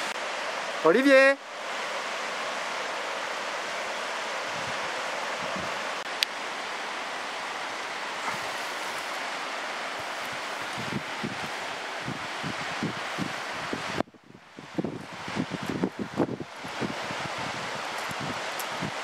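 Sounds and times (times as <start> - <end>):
rushing outdoor background noise: 0.0 - 19.0.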